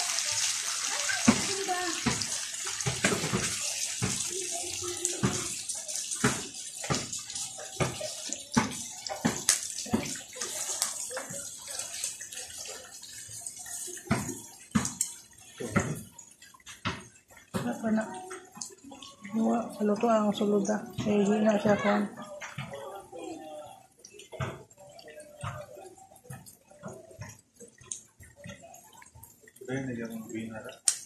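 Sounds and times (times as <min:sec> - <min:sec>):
oil popping: 0:00.0 - 0:31.0
sausages sizzling in oil: 0:00.0 - 0:31.0.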